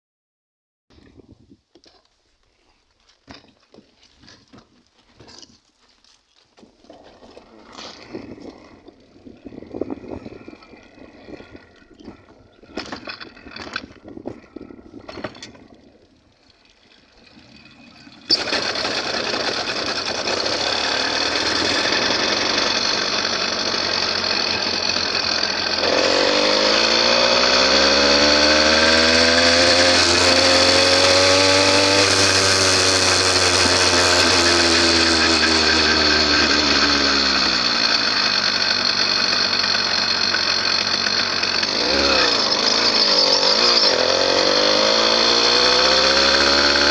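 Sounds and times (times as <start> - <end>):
motorbike engine running: 17.6 - 46.9.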